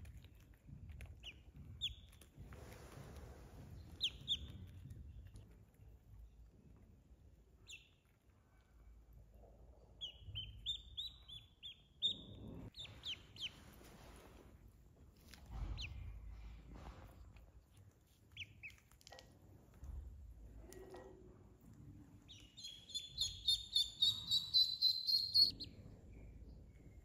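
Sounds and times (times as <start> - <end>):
duckling peeping: 1.0 - 2.3, 3.8 - 5.4, 7.6 - 8.0, 10.0 - 13.8, 15.8 - 16.0, 18.2 - 19.4, 22.2 - 25.8.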